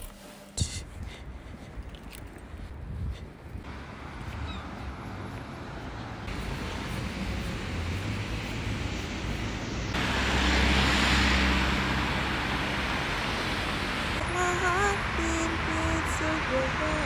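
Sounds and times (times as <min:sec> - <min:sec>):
cars driving past: 0:03.6 - 0:17.0.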